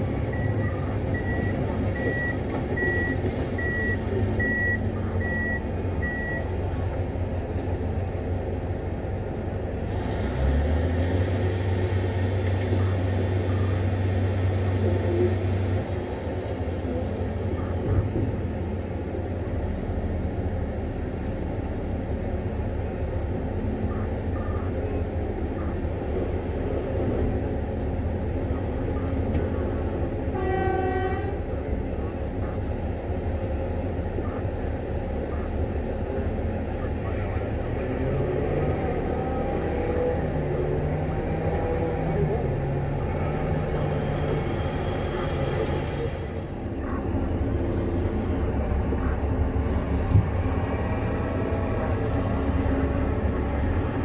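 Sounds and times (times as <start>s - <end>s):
diesel engines running: 0.0s - 54.0s
reversing alarm beeping: 0.3s - 6.5s.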